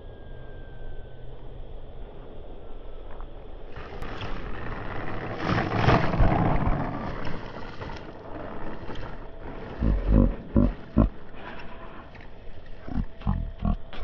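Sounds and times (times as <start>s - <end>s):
model plane rolling on grass: 2.1s - 14.0s
rushing noise: 3.7s - 13.2s.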